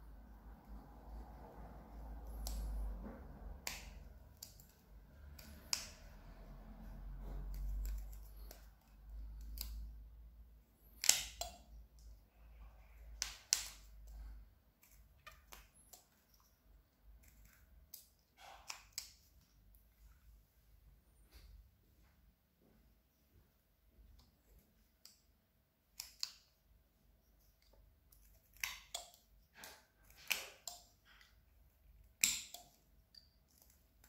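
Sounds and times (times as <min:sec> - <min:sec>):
knife carving wood: 0:02.0 - 0:10.0, 0:10.9 - 0:12.1, 0:13.0 - 0:19.6, 0:25.8 - 0:26.5, 0:27.2 - 0:31.3, 0:31.9 - 0:34.0.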